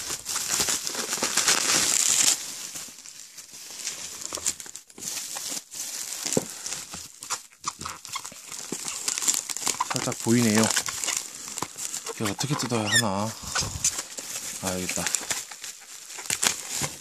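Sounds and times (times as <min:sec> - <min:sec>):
bubble wrap crinkling: 0:00.0 - 0:17.0.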